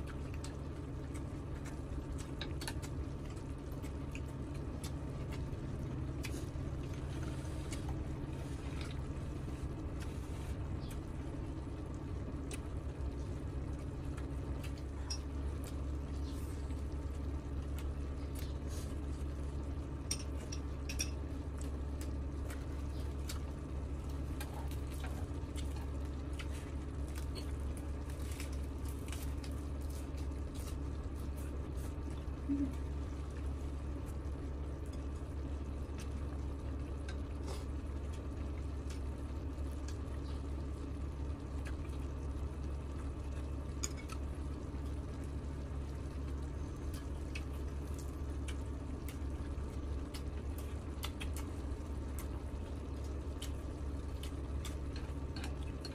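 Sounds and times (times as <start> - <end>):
eating sounds: 46.8 - 55.9.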